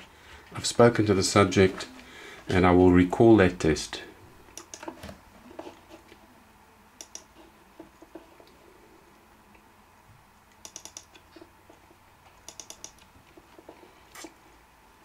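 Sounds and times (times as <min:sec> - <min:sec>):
laptop clicks: 0:04.5 - 0:05.2, 0:07.0 - 0:07.3, 0:10.5 - 0:11.3, 0:12.4 - 0:13.1.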